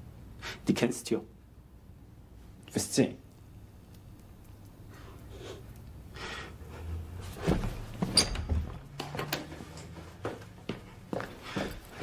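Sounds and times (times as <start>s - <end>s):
wardrobe door opening: 7.4s - 10.0s.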